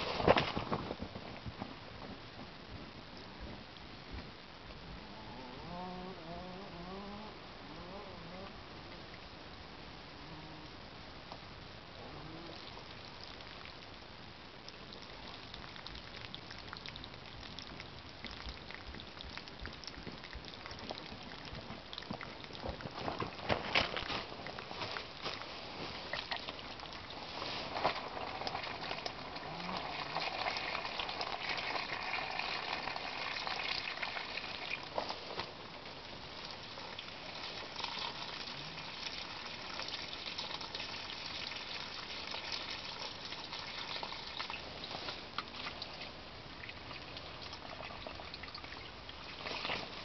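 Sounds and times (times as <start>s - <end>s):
hose clicks and rustles: 0.0s - 2.2s, 19.7s - 30.7s, 49.3s - 50.0s
water pouring from garden hose: 14.6s - 50.0s.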